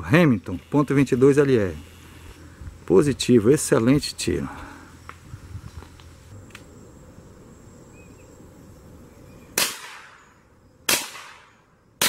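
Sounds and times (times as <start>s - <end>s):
rifle shots with echo: 9.6s - 10.2s, 10.9s - 11.6s.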